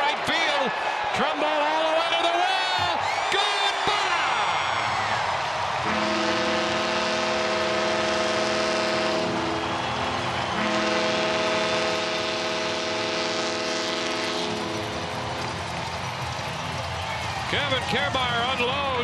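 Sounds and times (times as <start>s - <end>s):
crowd cheering: 0.0s - 19.0s
stadium horn blasts: 5.8s - 15.0s.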